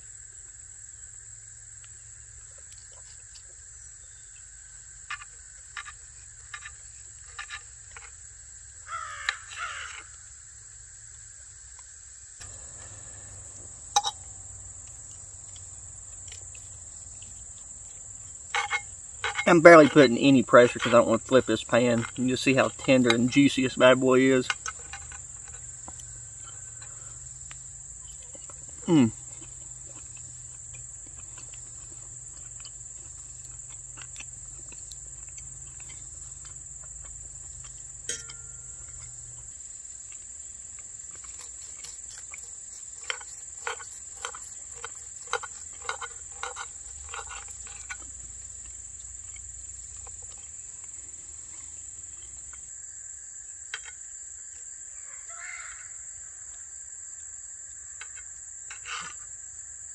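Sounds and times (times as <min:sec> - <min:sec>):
insects trilling: 0:00.0 - 0:59.9.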